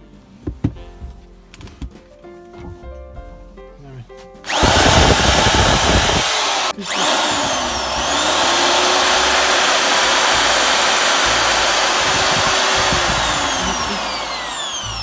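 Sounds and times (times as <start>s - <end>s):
electric drill motor whine: 4.5s - 15.0s.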